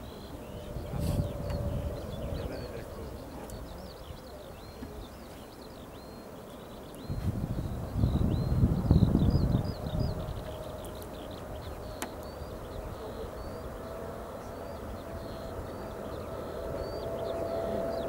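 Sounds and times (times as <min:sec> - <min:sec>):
distant jet engine rumble: 0:00.0 - 0:18.0
small birds chirping: 0:00.0 - 0:18.0.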